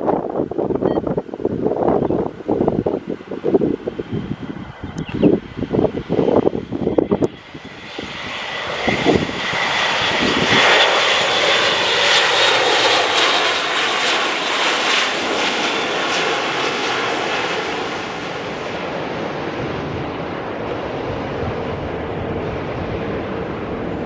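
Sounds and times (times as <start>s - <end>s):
turboprop aircraft drone: 0.0s - 24.0s.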